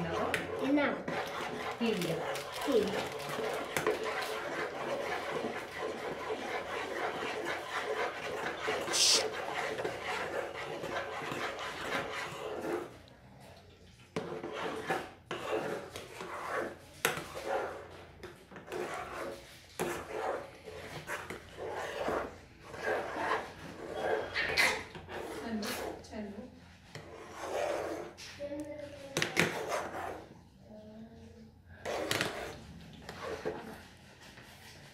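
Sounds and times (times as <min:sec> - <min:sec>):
spoon scraping pot: 0:00.0 - 0:13.0, 0:14.1 - 0:26.1, 0:31.8 - 0:33.9.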